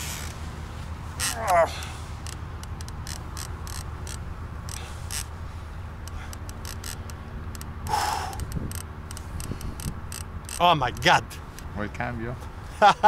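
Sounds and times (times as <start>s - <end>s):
fishing reel clicking: 2.2s - 5.3s, 6.0s - 11.2s.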